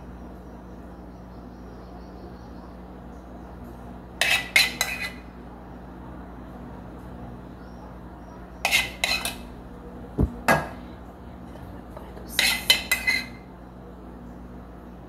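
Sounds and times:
dishes and cutlery clattering: 8.7 - 9.4
dull knock: 10.2 - 10.7.

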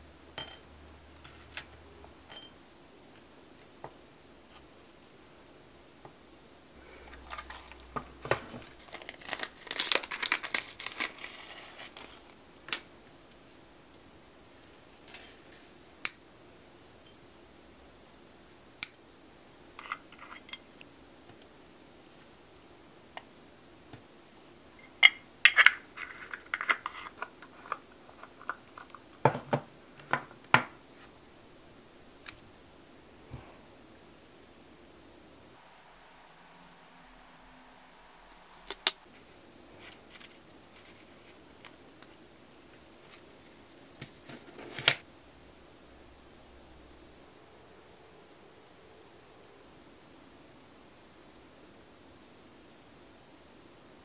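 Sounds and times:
crinkly rustling: 7.0 - 13.7, 39.1 - 42.2, 43.0 - 45.0.

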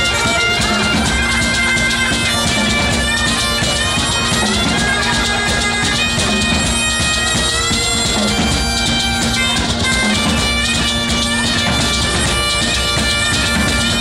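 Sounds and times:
bagpipe playing a tune: 0.0 - 14.0
drums beating: 0.0 - 14.0.

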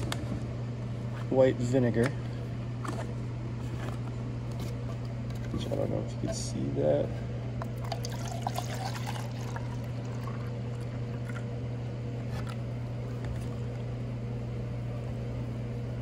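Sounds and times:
steady low hum: 0.0 - 16.0
liquid splashing into cup: 7.7 - 11.5.

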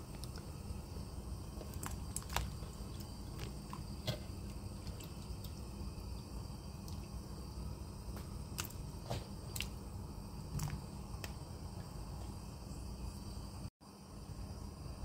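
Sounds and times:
potatoes plopping into water: 0.0 - 7.3, 8.1 - 11.5
low steady hum: 0.0 - 15.0.

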